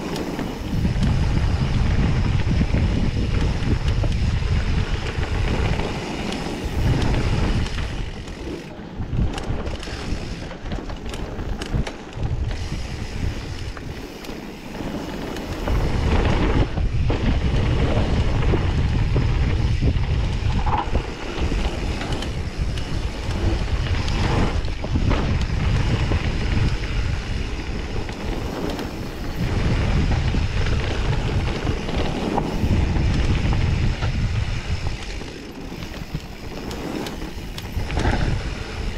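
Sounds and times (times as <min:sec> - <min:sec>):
bike clicks and knocks: 0:00.0 - 0:38.9
wind buffeting microphone: 0:00.0 - 0:38.9
tyres rolling over dirt and stones: 0:13.5 - 0:38.9.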